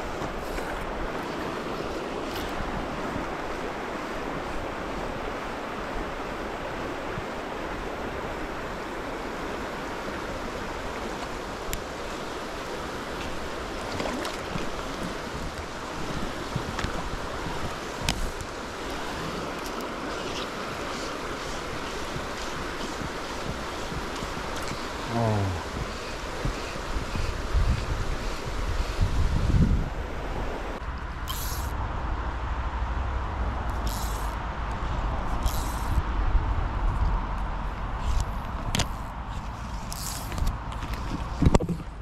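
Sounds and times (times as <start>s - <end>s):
river water rippling: 0.0s - 42.0s
wind on microphone: 10.3s - 32.2s.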